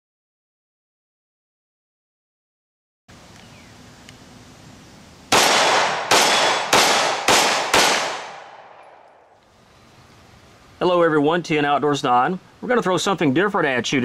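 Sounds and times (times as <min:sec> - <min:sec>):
pistol shots with ringing tail: 0:05.3 - 0:09.3.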